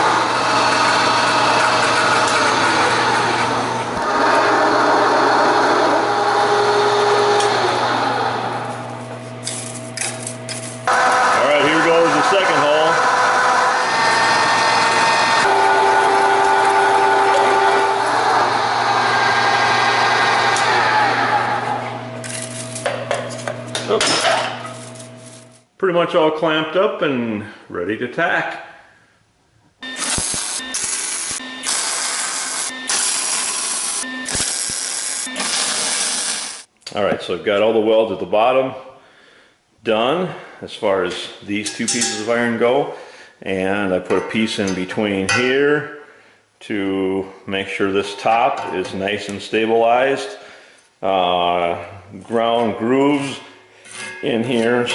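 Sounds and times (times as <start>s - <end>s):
drill bit cutting steel: 0.0s - 8.4s, 10.9s - 21.5s, 29.8s - 36.7s
milling machine motor hum: 0.0s - 22.7s, 29.8s - 36.7s
welding arc crackling: 30.0s - 36.7s.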